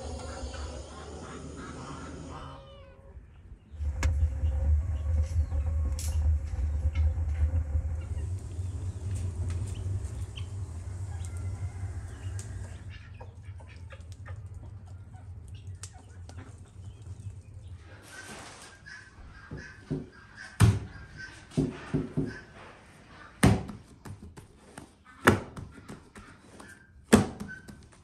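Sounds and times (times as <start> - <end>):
bird calls: 0.0 - 22.6
fire crackling and popping: 3.8 - 17.8.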